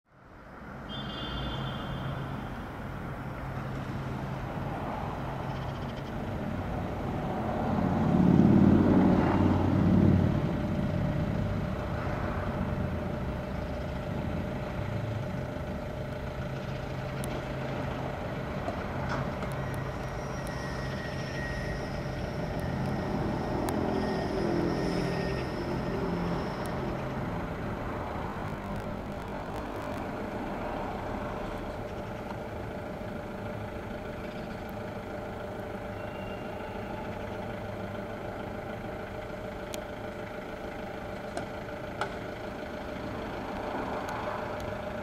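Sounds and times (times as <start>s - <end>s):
vehicle engines rumbling: 0.1s - 45.0s
vehicle passing: 3.5s - 5.5s, 6.4s - 15.2s.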